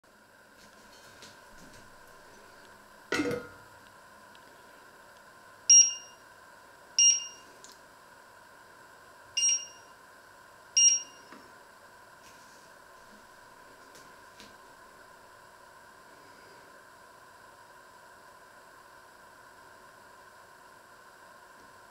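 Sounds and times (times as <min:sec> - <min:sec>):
faint steady hum: 0:00.0 - 0:21.9
metal lid clanking onto pot: 0:03.1 - 0:03.6
two-tone hob beeps: 0:05.7 - 0:06.2, 0:07.0 - 0:07.4, 0:09.4 - 0:09.9, 0:10.8 - 0:11.3.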